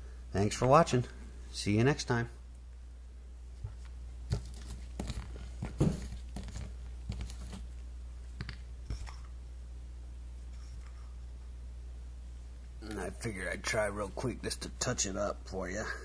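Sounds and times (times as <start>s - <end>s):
steady low hum: 0.0s - 16.0s
rustles and light knocks: 3.5s - 7.8s.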